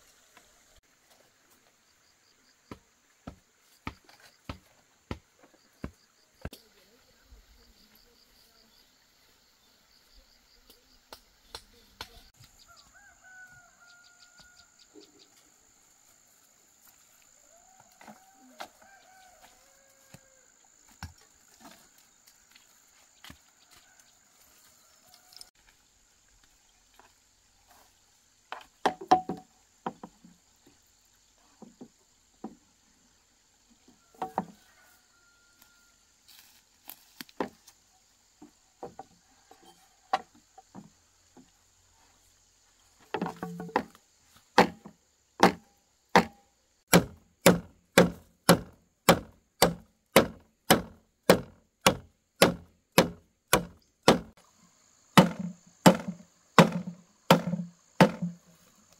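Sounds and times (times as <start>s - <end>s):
tool chopping wood: 44.6s - 54.4s, 55.2s - 58.4s.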